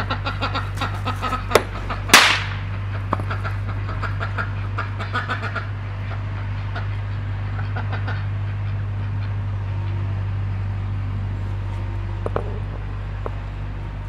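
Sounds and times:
sharp explosive crack: 0:02.1 - 0:02.7.

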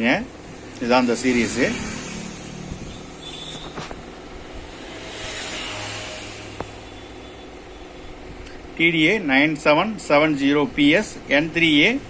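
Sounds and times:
steady background noise: 0:00.0 - 0:12.0
road vehicle passing: 0:00.3 - 0:08.3.

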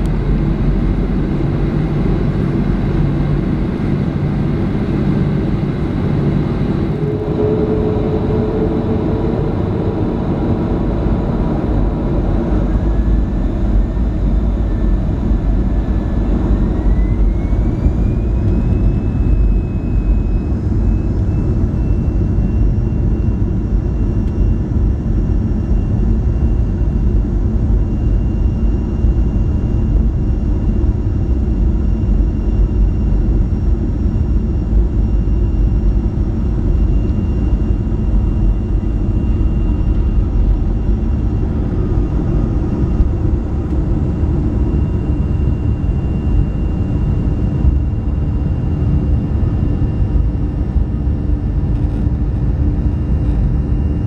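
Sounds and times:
jet engine rumble and whine: 0:00.0 - 0:54.0.

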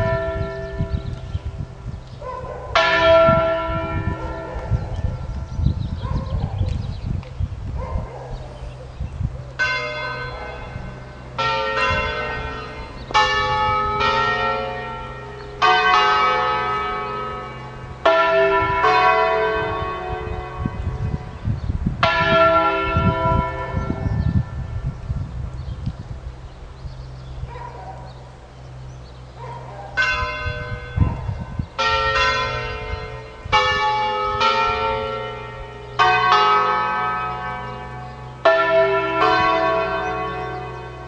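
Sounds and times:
church bell strokes: 0:02.7 - 0:05.5, 0:09.6 - 0:21.4, 0:22.0 - 0:24.8, 0:29.6 - 0:41.0.

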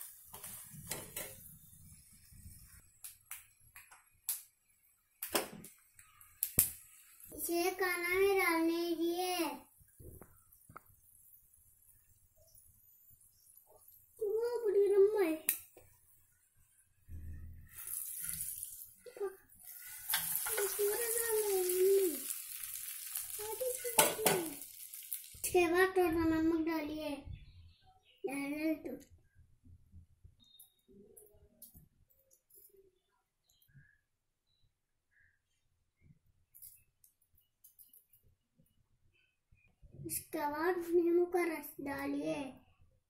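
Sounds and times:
spoon scraping pan hissing: 0:00.0 - 0:02.9, 0:17.5 - 0:25.4
spoon scraping and tapping pan: 0:00.3 - 0:01.5, 0:19.7 - 0:20.8.

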